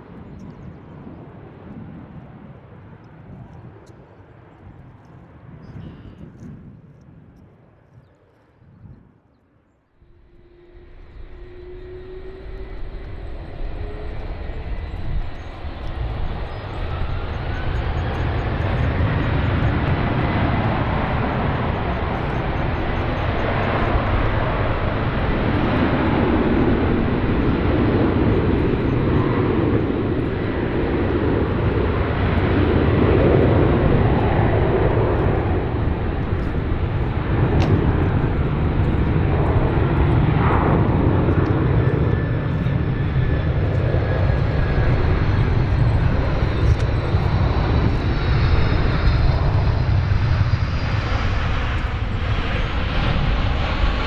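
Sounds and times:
thin whine rising in pitch: 10.0 - 17.6
jet engines roaring: 10.0 - 54.0.

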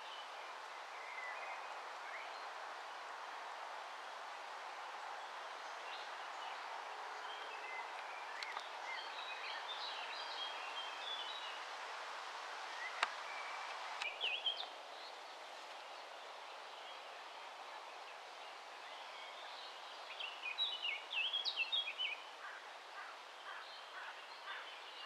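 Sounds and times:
outdoor background hiss: 0.0 - 25.0
small birds chirping: 5.1 - 11.6.

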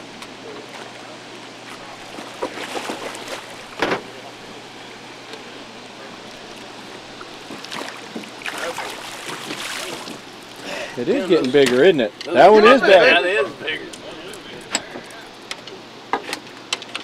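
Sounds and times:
water rushing: 0.0 - 15.4
fish splashing at water surface: 1.7 - 4.2, 7.3 - 10.7.

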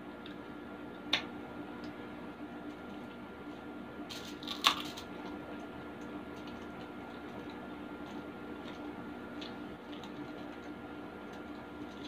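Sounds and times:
foil crackle: 4.1 - 5.1.

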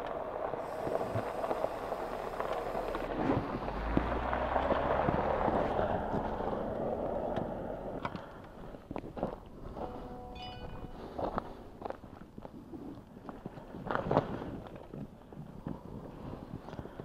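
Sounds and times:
wind and tyre noise: 0.0 - 17.0
low rumble: 0.4 - 8.4.

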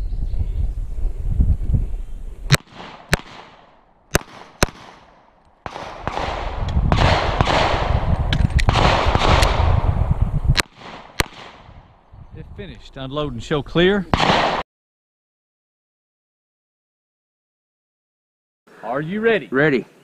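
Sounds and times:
pistol shots: 2.5 - 9.8, 10.5 - 11.8, 14.1 - 14.6.

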